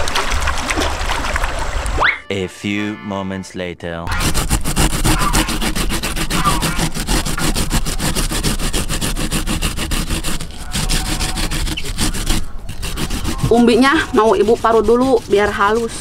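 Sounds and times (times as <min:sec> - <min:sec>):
tubers scraping on grater: 0:04.1 - 0:16.0.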